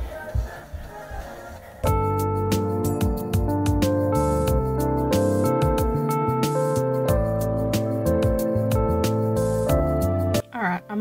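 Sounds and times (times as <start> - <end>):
instrumental music with beat: 0.0 - 11.0.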